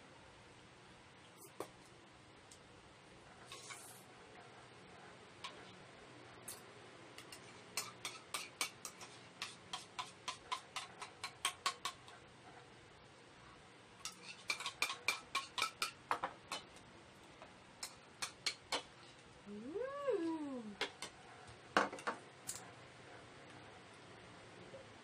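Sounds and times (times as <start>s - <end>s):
spoons clinking against bowls: 14.0s - 16.7s.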